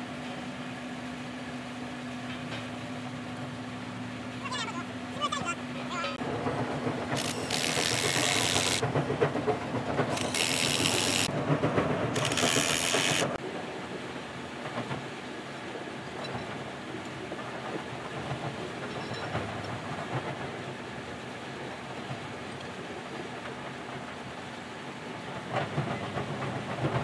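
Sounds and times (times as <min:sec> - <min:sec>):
impact wrench hammering and hissing: 0:07.2 - 0:08.8, 0:10.1 - 0:11.3, 0:12.2 - 0:13.4.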